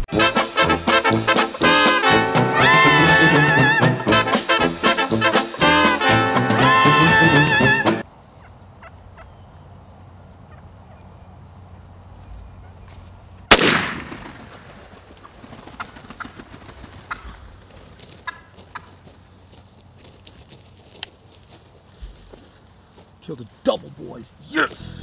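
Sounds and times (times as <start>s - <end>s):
background music: 0.0s - 8.0s, 24.7s - 25.0s
turkeys gobbling faintly: 7.5s - 13.2s, 15.0s - 20.2s
loud shotgun blast: 13.5s - 14.7s.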